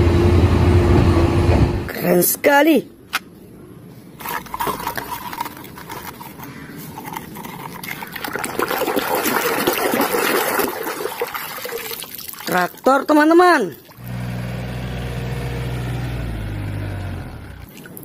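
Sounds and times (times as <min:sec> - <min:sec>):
water splashing and sloshing: 0:03.9 - 0:14.6, 0:16.4 - 0:18.0.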